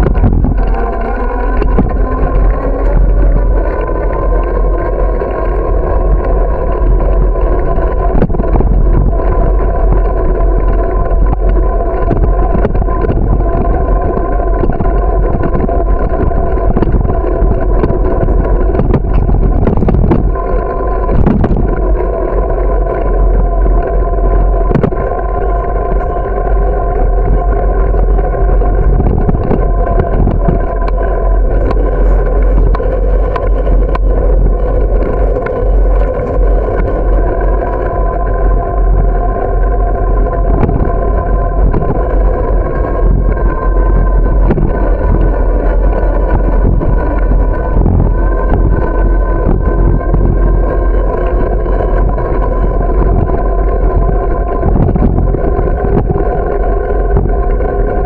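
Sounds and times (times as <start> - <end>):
steady hum: 0.0 - 58.0
wind rumble on microphone: 0.0 - 58.0.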